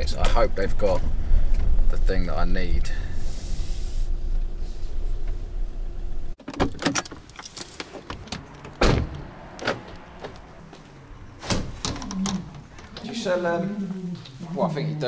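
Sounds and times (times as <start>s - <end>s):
van engine rumbling: 0.0s - 14.2s
car door opening and slamming: 6.4s - 10.6s, 11.3s - 12.8s.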